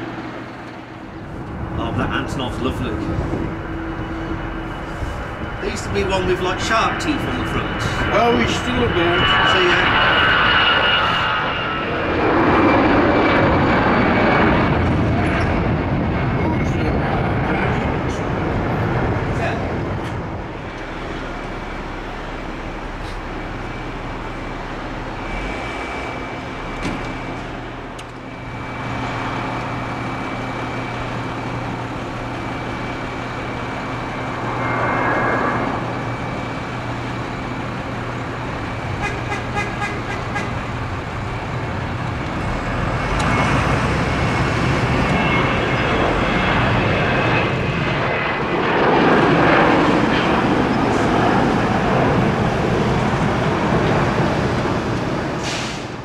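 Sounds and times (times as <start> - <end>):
jet engines running: 0.0 - 56.0.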